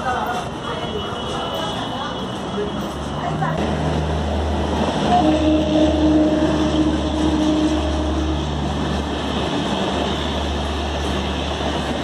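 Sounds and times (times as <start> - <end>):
wheel-on-rail rumble: 1.3 - 12.0
locomotive humming tone: 2.8 - 12.0.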